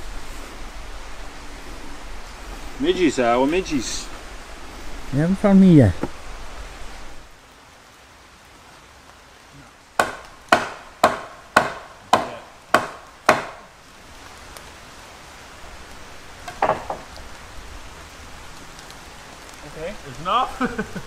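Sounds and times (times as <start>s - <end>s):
tool knocking on timber: 10.0s - 13.6s, 16.4s - 17.1s.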